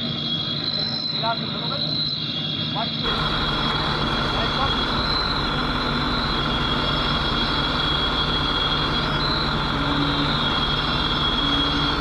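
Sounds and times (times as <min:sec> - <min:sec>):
thin high whine: 0:00.0 - 0:12.0
vehicle engine running: 0:03.0 - 0:12.0.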